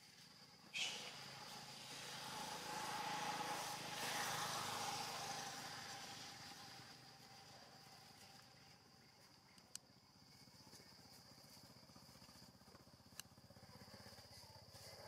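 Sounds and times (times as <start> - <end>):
motor vehicle passing: 0.8 - 8.2.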